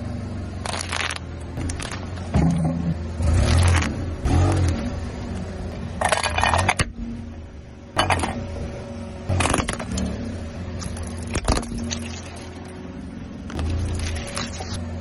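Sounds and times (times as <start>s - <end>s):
car engine humming: 0.0s - 15.0s
tyre crushing brittle objects: 0.6s - 2.6s, 3.3s - 4.8s, 9.3s - 10.0s, 10.8s - 12.6s.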